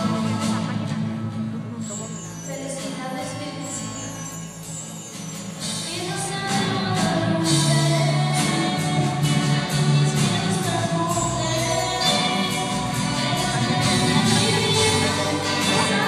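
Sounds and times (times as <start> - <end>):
girl singing: 5.8 - 12.7.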